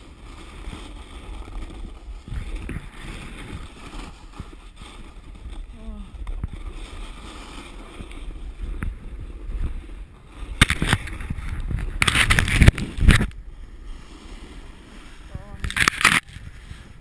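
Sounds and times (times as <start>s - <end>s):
snowboard scraping on icy snow: 0.0s - 17.0s
wind rumbling on microphone: 0.0s - 17.0s.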